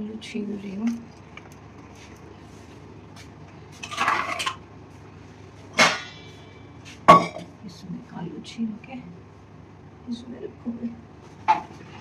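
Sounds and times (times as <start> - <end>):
metal pots and utensils clattering: 3.8 - 4.6, 5.7 - 6.3, 7.1 - 7.5.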